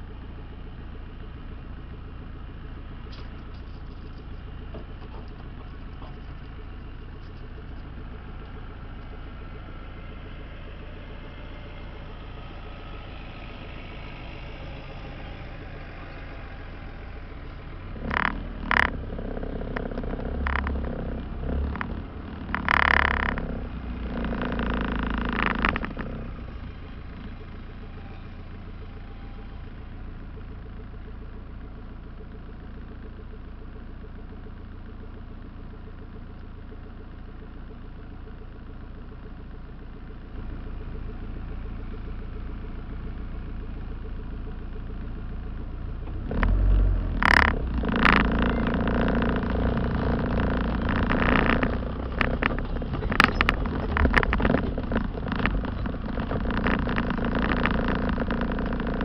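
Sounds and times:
jeep engine idling and revving: 0:00.0 - 0:59.0
vehicle clattering: 0:03.0 - 0:28.0, 0:46.1 - 0:59.0.

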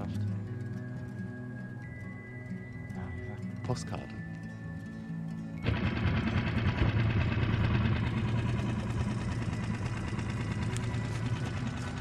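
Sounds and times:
outboard motor running: 0:05.6 - 0:12.0.

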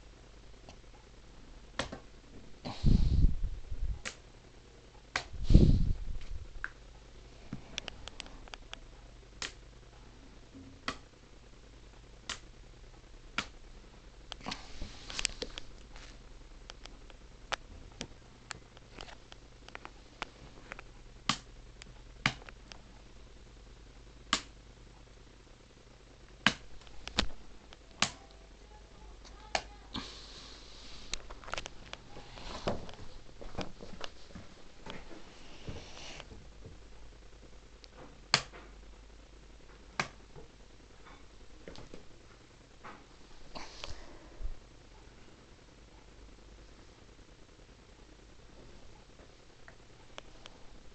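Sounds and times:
faint low hum: 0:00.0 - 0:50.9
hiss: 0:30.0 - 0:31.1.

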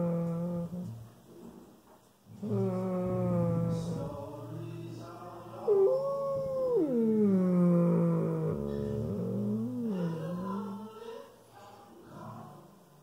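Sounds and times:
dog howling: 0:05.6 - 0:11.0.

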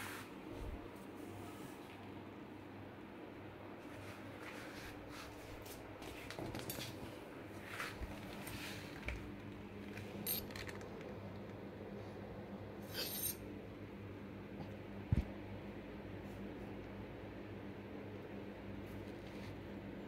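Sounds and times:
steady low hum: 0:00.0 - 0:20.0
kitten playing on tiled floor: 0:03.9 - 0:11.4, 0:12.8 - 0:13.4.

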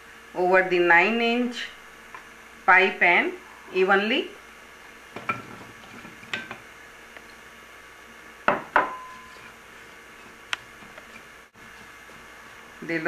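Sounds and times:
glass dishes clinking: 0:08.5 - 0:09.4.

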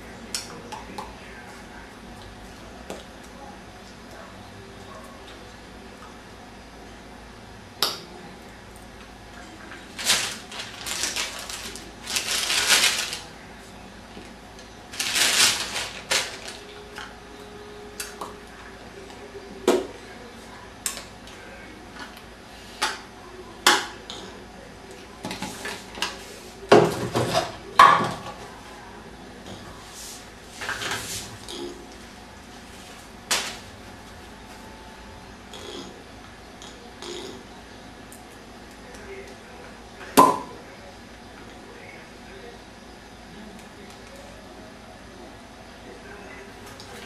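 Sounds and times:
packaging rustling: 0:09.9 - 0:13.3, 0:14.9 - 0:16.7.

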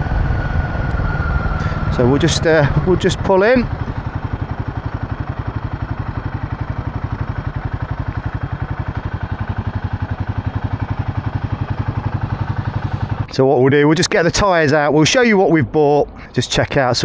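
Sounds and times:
motorcycle engine thumping: 0:00.5 - 0:13.4.

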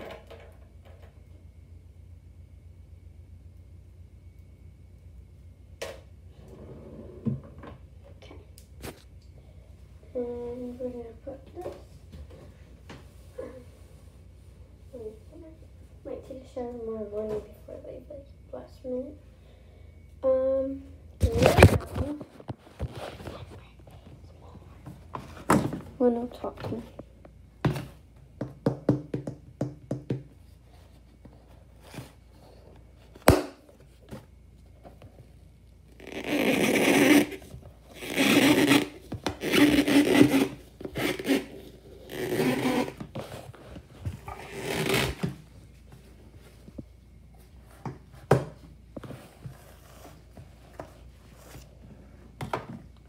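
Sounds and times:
wipe rubbing and scraping: 0:36.1 - 0:45.2.

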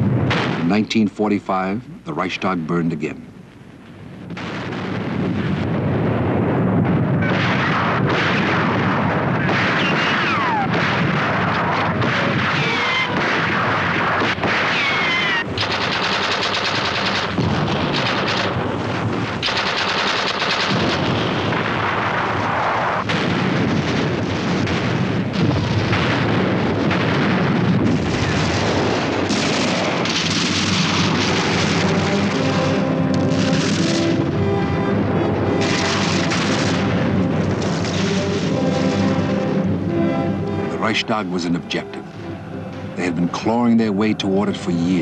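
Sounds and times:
heavy gunfire: 0:00.0 - 0:00.9, 0:04.3 - 0:34.4, 0:35.6 - 0:39.6
field-gun fire: 0:00.0 - 0:01.0, 0:04.3 - 0:34.4, 0:35.6 - 0:39.6.

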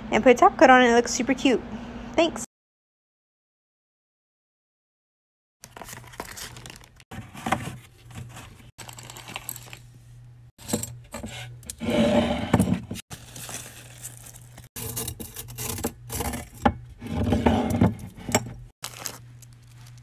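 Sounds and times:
plastic wrapping crinkling: 0:05.6 - 0:07.0, 0:13.1 - 0:14.7, 0:18.8 - 0:20.0
nail files rustling in plastic bags: 0:05.6 - 0:10.0, 0:13.1 - 0:14.9, 0:18.8 - 0:20.0.

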